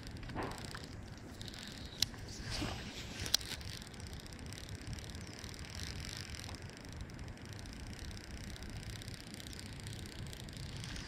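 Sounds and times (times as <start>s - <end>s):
fishing reel whirring: 0.0s - 11.0s
sharp reel click: 0.0s - 11.0s
fishing rod swishing overhead: 2.2s - 3.3s.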